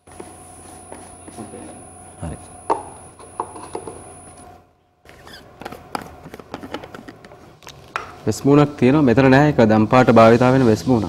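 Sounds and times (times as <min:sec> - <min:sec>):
objects knocking on table: 0:02.7 - 0:04.0.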